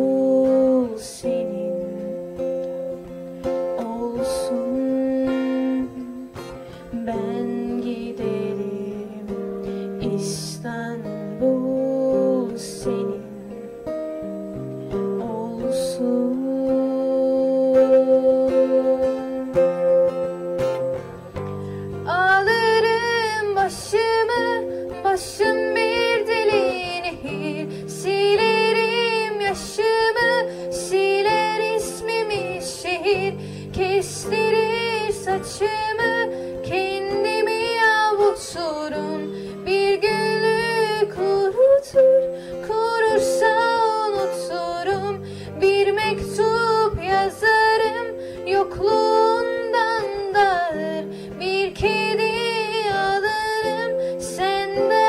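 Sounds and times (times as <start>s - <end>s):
acoustic guitar: 0.0s - 55.0s
girl singing into microphone: 0.0s - 55.0s.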